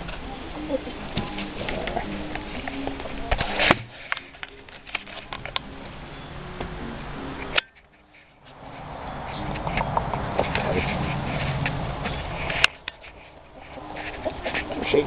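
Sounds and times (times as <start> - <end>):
chickens murmuring softly: 0.0 - 4.3, 8.0 - 15.0
clicks and rustling: 0.0 - 5.7, 7.4 - 15.0.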